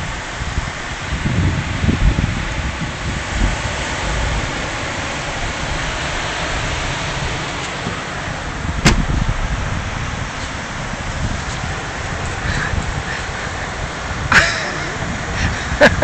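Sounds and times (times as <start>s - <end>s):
wind noise: 0.0s - 16.0s
palm fronds rustling: 3.2s - 15.5s.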